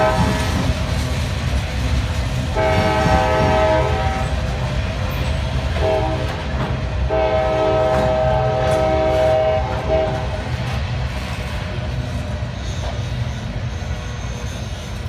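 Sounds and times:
locomotive horn blasts: 0:00.0 - 0:00.6, 0:02.5 - 0:04.4, 0:05.7 - 0:10.5
freight train rumbling: 0:00.0 - 0:15.0.

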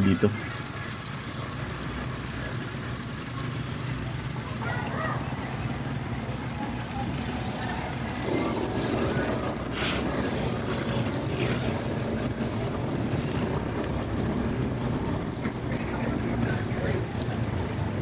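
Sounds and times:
road noise: 0:00.0 - 0:18.0
vehicle engine running: 0:00.0 - 0:18.0
brief hiss: 0:09.8 - 0:10.0.

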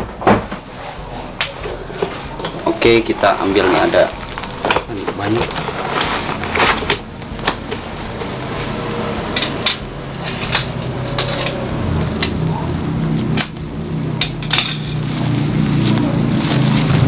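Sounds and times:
plastic sack rustling and tearing: 0:02.8 - 0:08.9, 0:14.8 - 0:17.0.

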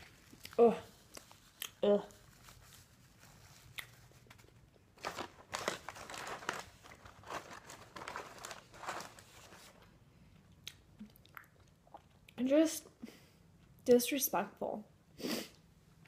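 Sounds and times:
paper crumpling and rustling: 0:00.0 - 0:09.9.

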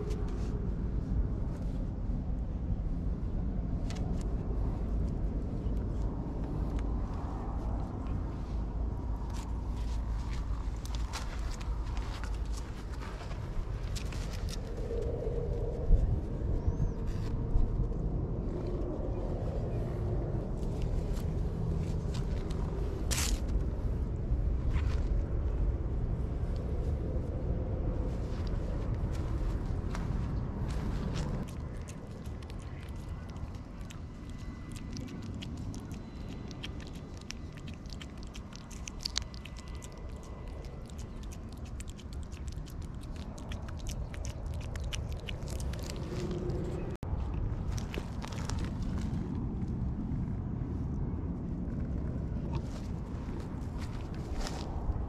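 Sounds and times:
low outdoor rumble: 0:00.0 - 0:55.0
cat licking: 0:31.4 - 0:46.9.

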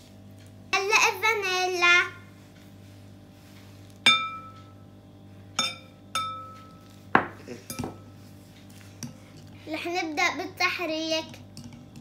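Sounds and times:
glass clinking against glass bowl: 0:04.0 - 0:04.8, 0:05.6 - 0:08.2.

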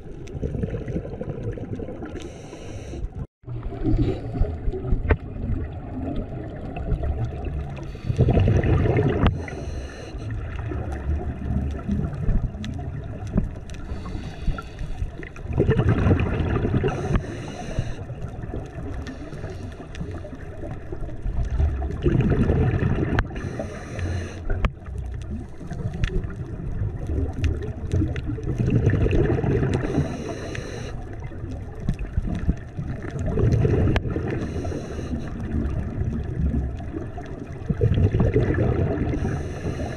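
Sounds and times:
gurgling rush of bubbles: 0:00.0 - 0:02.4, 0:03.2 - 0:39.9
diver breathing through regulator: 0:02.1 - 0:03.3, 0:07.8 - 0:10.5, 0:13.7 - 0:15.3, 0:16.8 - 0:18.3, 0:19.0 - 0:20.3, 0:23.3 - 0:24.6, 0:29.7 - 0:31.1, 0:34.1 - 0:35.5, 0:39.0 - 0:39.9.

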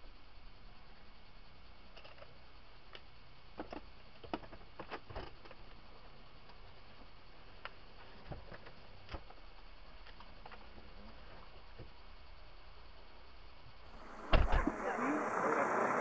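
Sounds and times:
low hum in vehicle cabin: 0:05.3 - 0:16.0.

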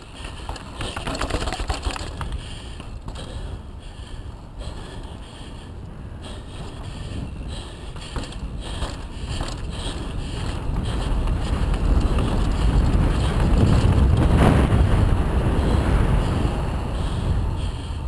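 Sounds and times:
bike knocking on bumps: 0:00.0 - 0:03.5, 0:06.5 - 0:15.8
tyre noise on pavement: 0:00.0 - 0:17.7
wind buffeting microphone: 0:00.0 - 0:18.0.

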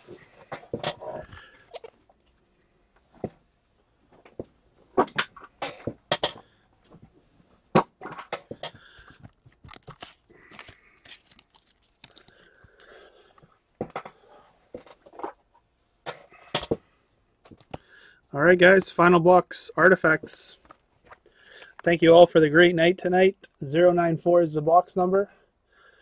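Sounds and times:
card packaging crinkling: 0:08.8 - 0:12.9.

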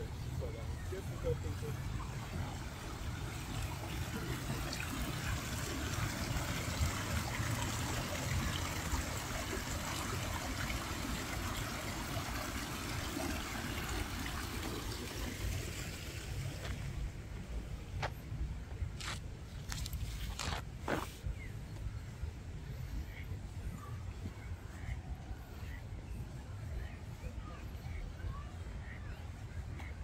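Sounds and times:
running water rushing: 0:00.0 - 0:17.9.

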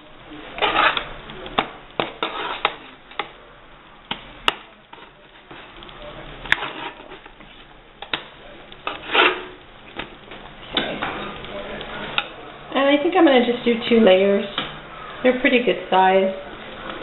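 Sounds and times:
scraping rustle: 0:00.5 - 0:01.2, 0:02.1 - 0:03.0, 0:04.9 - 0:07.7, 0:08.8 - 0:09.6.

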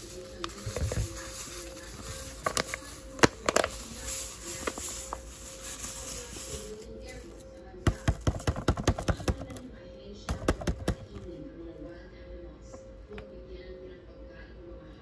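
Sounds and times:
powder pouring: 0:00.0 - 0:07.2
paper bag crinkling: 0:00.0 - 0:07.4
faint background music: 0:00.0 - 0:15.0.

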